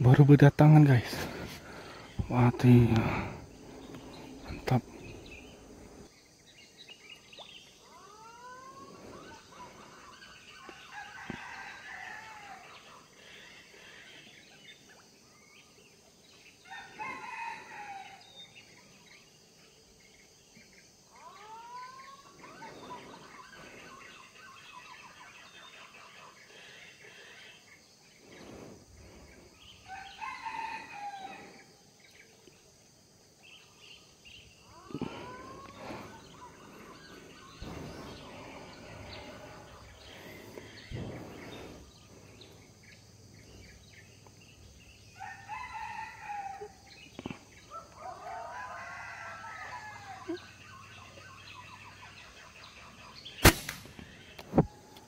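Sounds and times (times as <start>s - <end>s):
roosters crowing: 10.6s - 13.0s, 16.6s - 18.4s, 28.8s - 31.8s, 34.6s - 42.0s, 45.0s - 51.2s.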